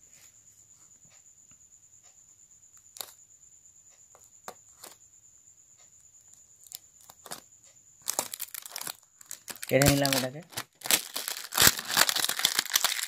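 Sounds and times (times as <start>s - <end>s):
blade scraping plastic wrap: 8.1s - 13.0s.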